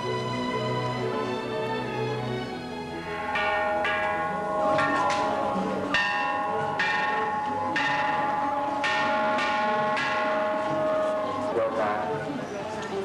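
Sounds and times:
temple bells struck: 0:03.0 - 0:12.4.

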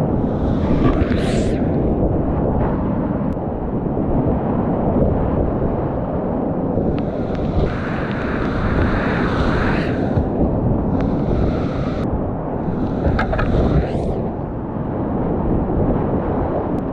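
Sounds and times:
water buffeting microphone: 0:06.7 - 0:14.5.

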